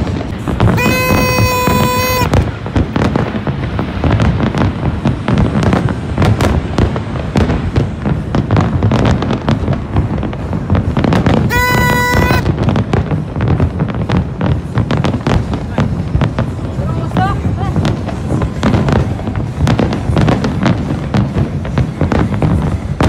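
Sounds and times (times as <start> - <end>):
fireworks bangs and crackles: 0.0 - 23.0
horn steady note: 0.8 - 2.4.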